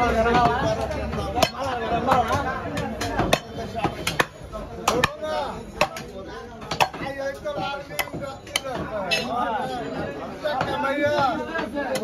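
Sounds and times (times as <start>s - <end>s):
voices chattering: 0.0s - 12.0s
cleaver chopping on wooden block: 0.3s - 8.9s.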